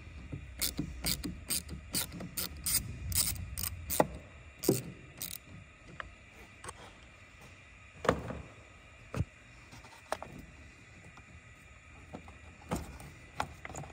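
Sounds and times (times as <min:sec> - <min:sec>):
hand ratchet clicking: 0:00.6 - 0:05.5.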